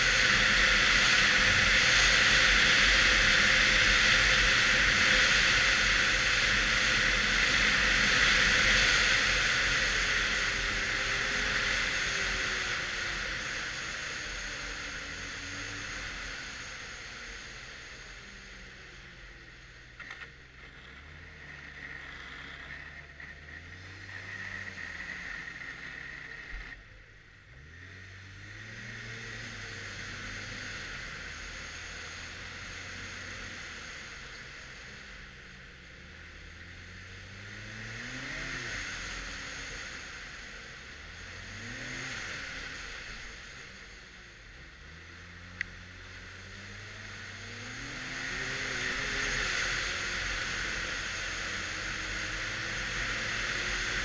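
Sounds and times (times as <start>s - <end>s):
rushing hiss of wind and track: 0.0s - 26.8s, 27.6s - 54.0s
snowmobile engine: 0.0s - 54.0s.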